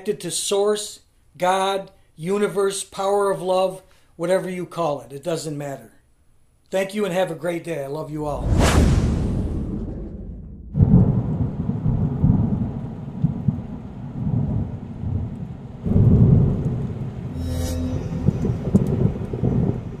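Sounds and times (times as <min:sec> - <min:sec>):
hissing whoosh: 0:08.2 - 0:10.8
thunder rumbling: 0:08.2 - 0:17.3, 0:18.1 - 0:20.0.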